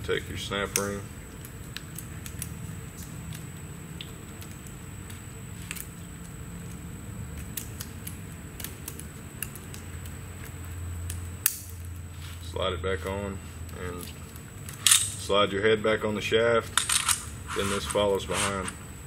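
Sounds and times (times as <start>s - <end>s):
steady low hum: 0.0s - 19.0s
metal snap ring clicks and scrapes: 16.7s - 18.8s.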